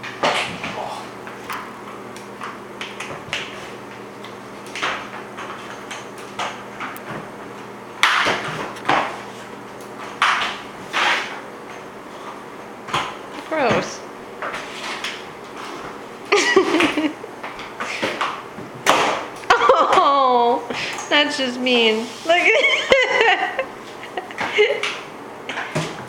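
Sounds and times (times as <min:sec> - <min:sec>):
mop swishing across wooden floor: 0:20.8 - 0:22.7.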